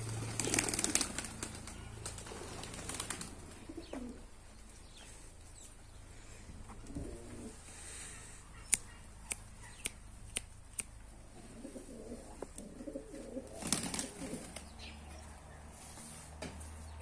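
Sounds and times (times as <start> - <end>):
pigeons cooing: 0.0 - 5.2, 6.4 - 9.8, 11.3 - 14.7
sharp clicks: 8.7 - 11.0.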